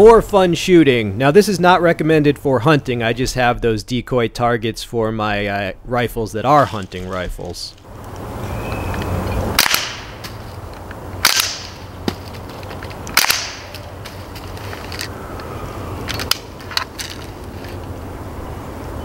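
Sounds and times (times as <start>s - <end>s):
bb rifle shots: 9.6s - 10.2s, 11.2s - 11.9s, 13.1s - 13.8s.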